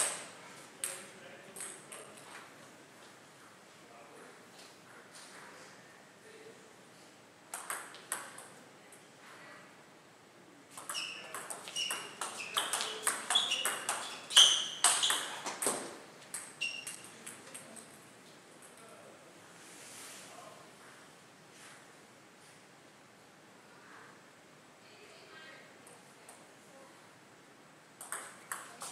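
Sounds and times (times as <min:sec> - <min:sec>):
table tennis rally: 0:00.0 - 0:02.6, 0:07.4 - 0:09.0, 0:10.6 - 0:18.8, 0:28.0 - 0:28.9
ball bouncing on table: 0:07.5 - 0:08.5, 0:10.7 - 0:17.6, 0:28.0 - 0:28.9.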